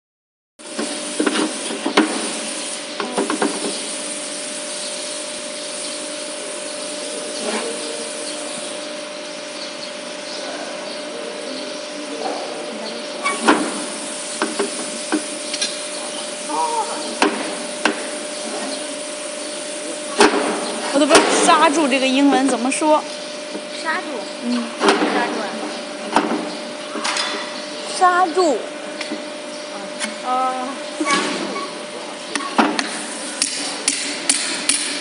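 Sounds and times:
steady hiss: 0:00.7 - 0:08.9, 0:13.2 - 0:21.9.

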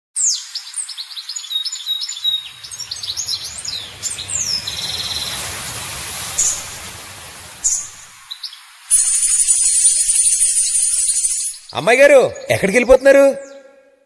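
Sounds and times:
small birds chirping: 0:00.2 - 0:13.6
low steady rumble: 0:02.4 - 0:08.0.

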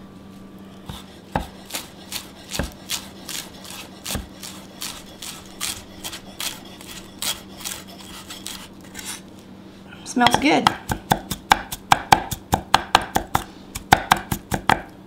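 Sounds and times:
knife chopping on wooden board: 0:00.9 - 0:08.7, 0:10.2 - 0:14.9.

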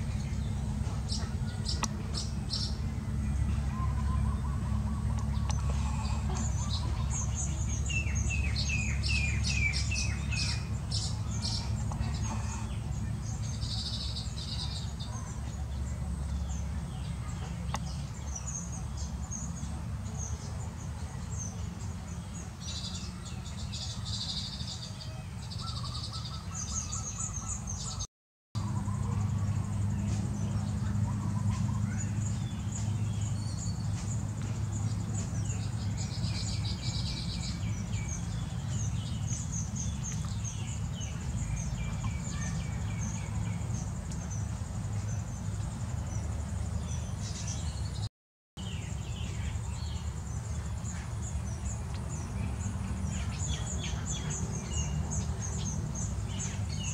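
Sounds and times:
small birds chirping: 0:00.0 - 0:56.9.

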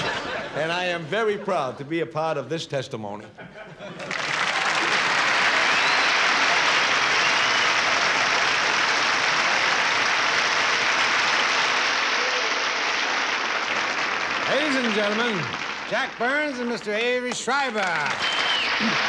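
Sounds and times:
audience applauding: 0:04.0 - 0:19.0.

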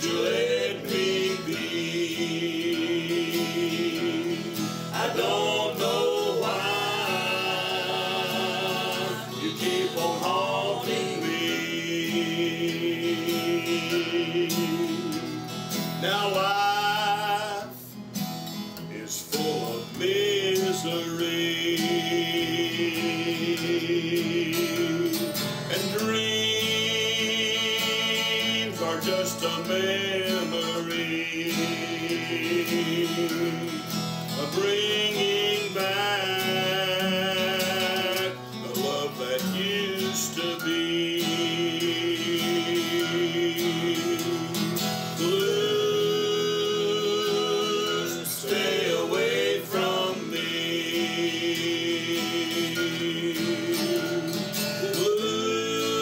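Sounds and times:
acoustic guitar: 0:00.0 - 0:56.0
men singing country song: 0:00.0 - 0:56.0.

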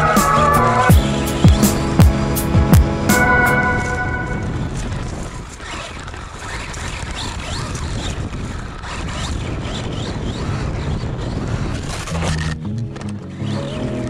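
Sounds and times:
drivetrain and tyre noise: 0:00.0 - 0:03.4.

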